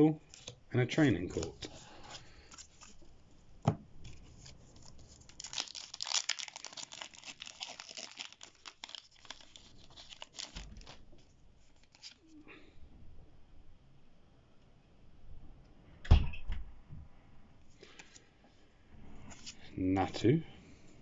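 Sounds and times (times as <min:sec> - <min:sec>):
foil wrapper tearing and crinkling: 0:04.3 - 0:11.0, 0:11.7 - 0:12.2.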